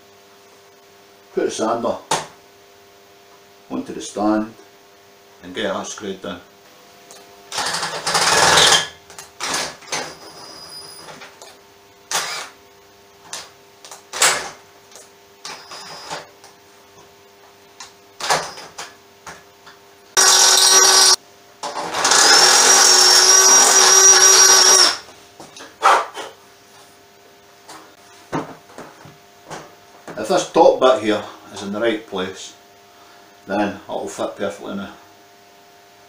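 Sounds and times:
cordless drill whining: 7.5s - 11.3s, 12.1s - 12.5s, 15.4s - 16.3s, 20.2s - 25.0s.

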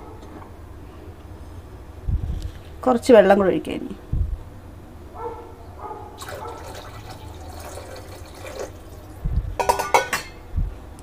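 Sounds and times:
water pouring into liquid: 6.2s - 9.2s.

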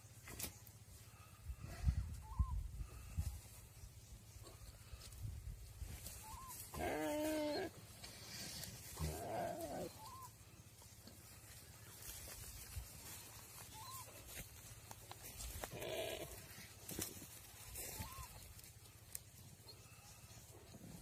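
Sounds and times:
deer distress cries: 6.2s - 7.8s, 8.9s - 10.4s, 15.6s - 16.5s, 17.7s - 18.5s.

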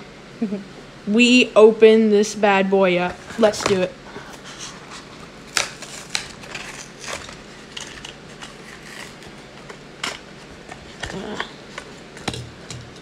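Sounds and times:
stiff plastic and card crinkling: 3.2s - 12.3s
plastic snapping and cracking: 5.5s - 13.0s.

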